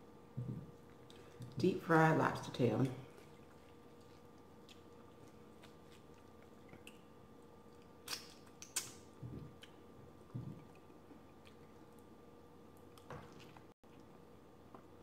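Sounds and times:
wet mouth smacks: 7.8s - 9.0s.

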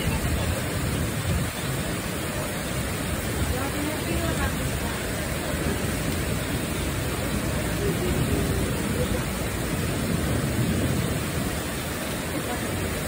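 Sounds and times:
heavy rain falling: 0.0s - 13.0s.

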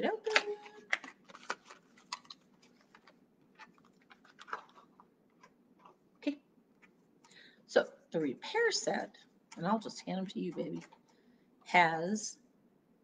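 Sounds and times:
packaging clicks and rustles: 0.2s - 6.0s, 9.5s - 11.2s.

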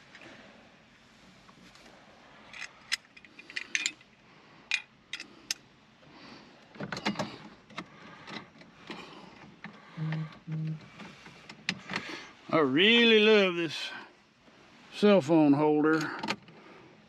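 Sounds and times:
clicks and rattles of small parts: 2.5s - 4.1s, 4.7s - 5.6s.

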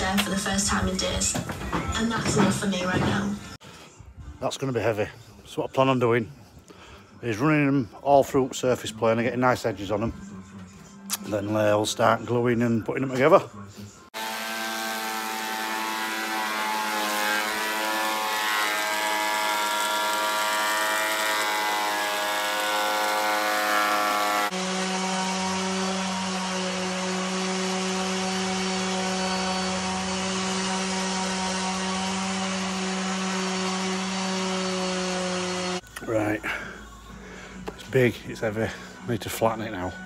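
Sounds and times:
electric planer whine: 14.2s - 35.8s
orbital sander whine: 14.2s - 35.8s.

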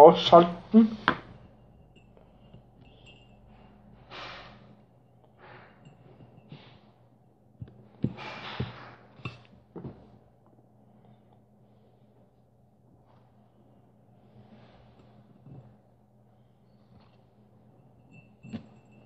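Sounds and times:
thin high whine: 0.0s - 7.4s
faint low hum: 0.0s - 19.0s
huffs of breath through nose: 3.0s - 4.8s.

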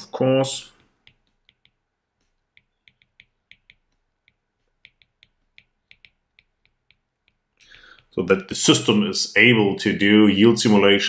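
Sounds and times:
stylus tapping on tablet screen: 0.7s - 8.1s.

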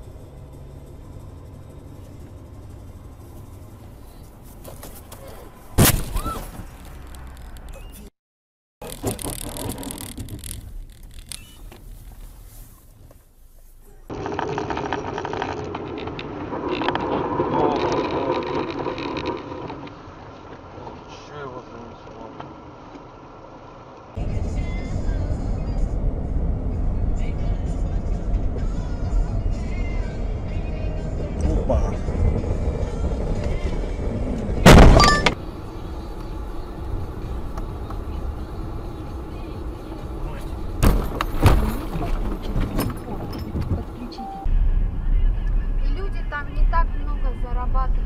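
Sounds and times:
car engine: 0.0s - 5.8s, 6.6s - 8.0s, 8.8s - 48.0s
road and tyre noise: 0.0s - 8.1s, 8.8s - 48.0s
car crash: 5.6s - 7.7s, 14.1s - 22.6s, 32.1s - 35.4s, 40.2s - 43.8s
clicks and crackles: 6.7s - 7.9s, 8.8s - 11.9s.

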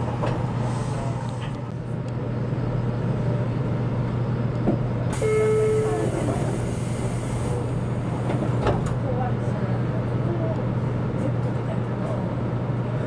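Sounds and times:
electric train humming: 0.0s - 11.2s
short held tone: 5.2s - 6.0s.

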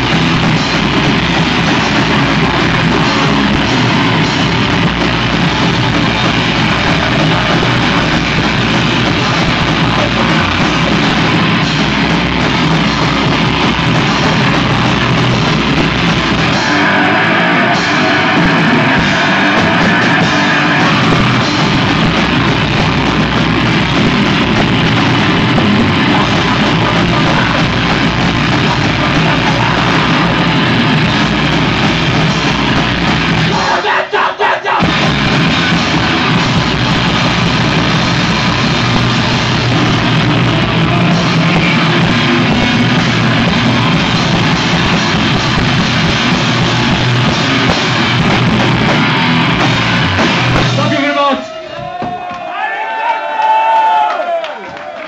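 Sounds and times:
punk band playing live: 0.0s - 52.5s
screamed vocal: 33.4s - 34.9s.

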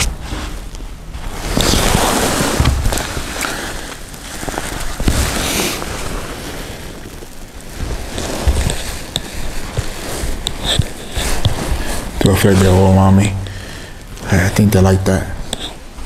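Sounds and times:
carpet rustling and scraping: 0.0s - 14.8s
low thumps of handling: 0.3s - 3.5s.

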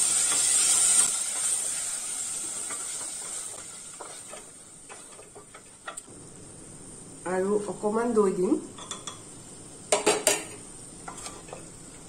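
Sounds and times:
food sizzling in a pot: 0.0s - 12.0s
wooden spatula scraping a pot: 11.0s - 11.7s.

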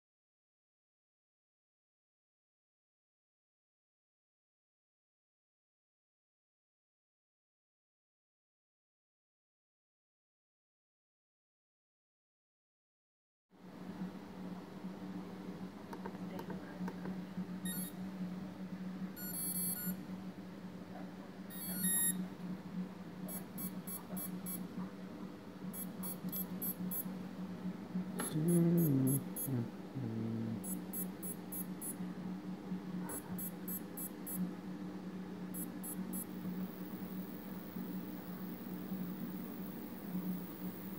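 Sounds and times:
low electric hum: 13.6s - 40.9s
rapid high-pitched electronic beeps: 21.5s - 22.2s, 25.8s - 27.0s, 35.6s - 37.0s.

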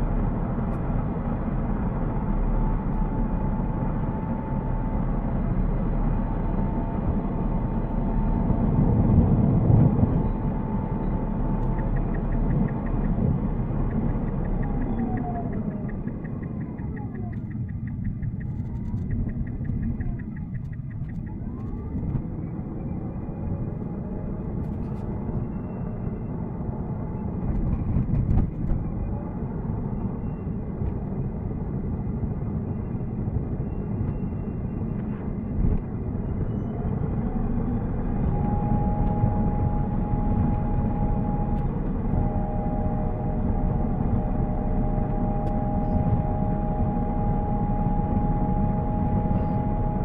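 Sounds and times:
road and tyre noise in car: 0.0s - 50.0s
fast light ticks: 11.6s - 22.1s.

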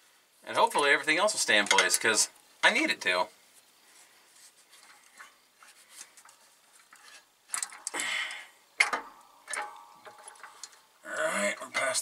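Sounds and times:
metal scraping: 4.4s - 7.9s, 8.8s - 12.0s
metal clutch plate clicks: 6.9s - 8.0s, 8.8s - 10.8s
sharp metal clanks: 8.8s - 10.8s.

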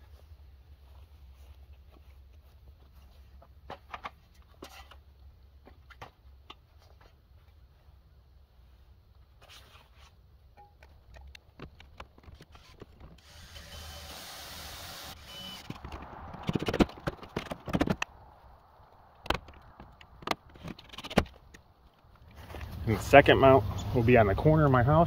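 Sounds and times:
sharp clattering clicks and knocks: 10.6s - 13.2s, 15.6s - 18.1s, 19.2s - 22.4s
cordless drill driving a screw: 12.5s - 15.8s.

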